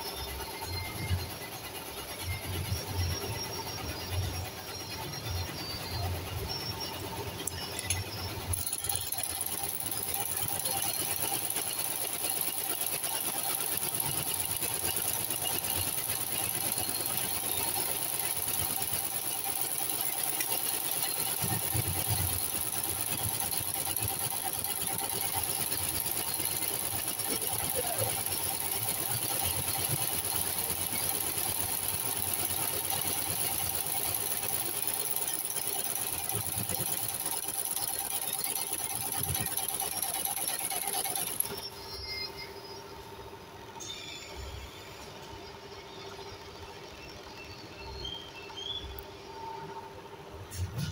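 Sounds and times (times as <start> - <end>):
seaming machine humming: 7.1 - 41.8.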